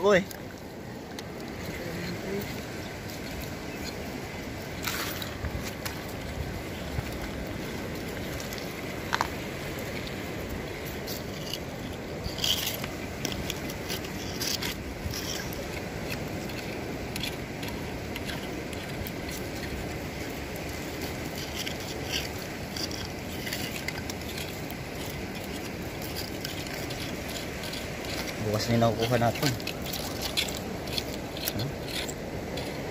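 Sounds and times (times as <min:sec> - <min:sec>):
shallow sea water washing: 0:00.0 - 0:32.9
wind: 0:00.0 - 0:32.9
shells and stones clicking: 0:10.9 - 0:32.9.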